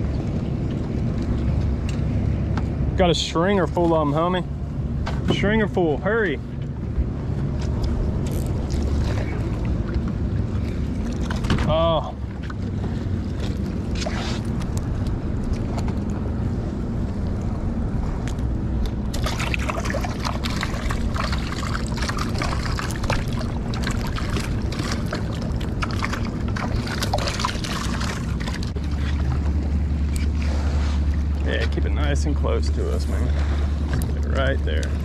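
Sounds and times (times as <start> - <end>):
boat engine humming: 0.0 - 35.0
water splashing and sloshing: 0.0 - 35.0.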